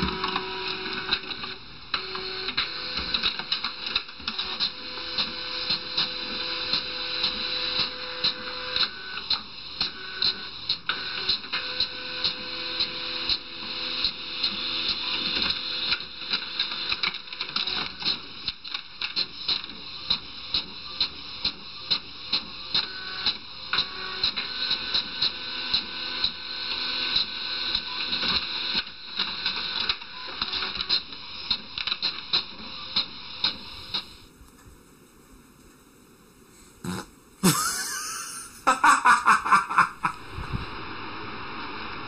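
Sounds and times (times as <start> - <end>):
fax machine whirring: 0.0 - 15.9.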